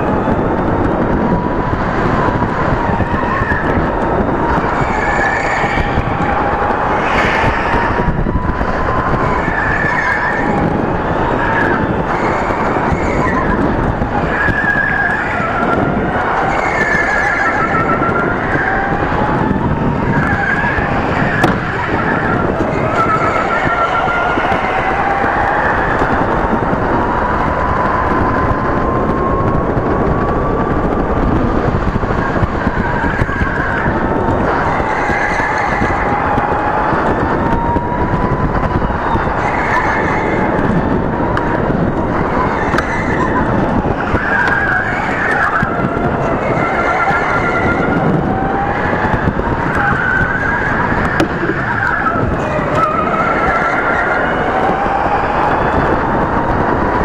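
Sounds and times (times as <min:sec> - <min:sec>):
electric kart motor whining: 0:00.0 - 0:57.0
steady rumble: 0:00.0 - 0:57.0
tyre squeals: 0:01.2 - 0:26.3.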